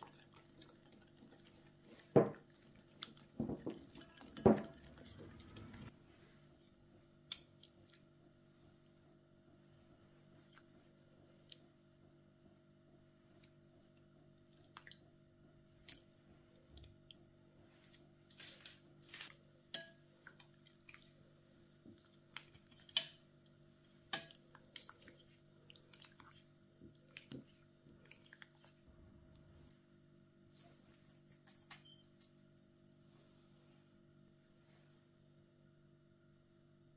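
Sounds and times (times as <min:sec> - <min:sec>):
faint steady hum: 0:00.0 - 0:36.9
dishes and cutlery clinking: 0:03.4 - 0:05.6.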